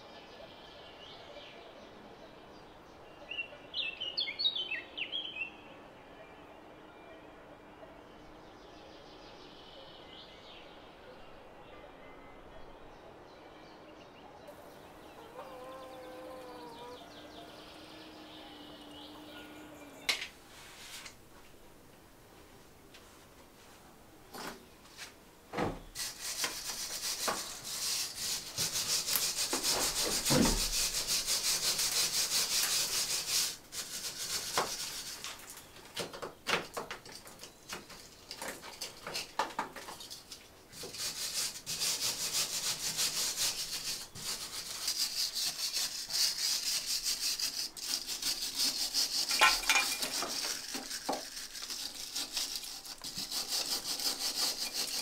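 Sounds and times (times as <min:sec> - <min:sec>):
trowel scraping stone wall: 0:26.0 - 0:35.7, 0:40.8 - 0:55.0.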